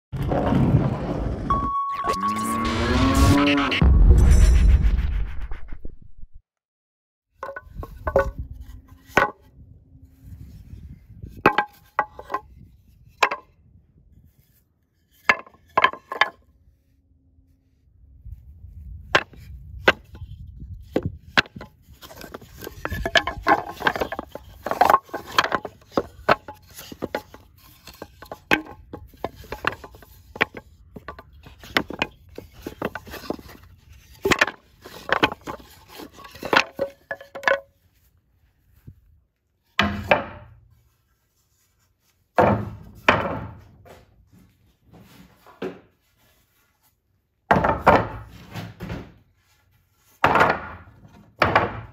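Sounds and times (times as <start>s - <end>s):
wooden boards knocking together: 7.4s - 9.4s, 11.3s - 12.5s, 13.2s - 13.5s, 15.1s - 16.4s, 19.1s - 37.8s, 39.7s - 40.6s, 42.4s - 44.0s, 47.5s - 49.2s, 50.2s - 51.9s.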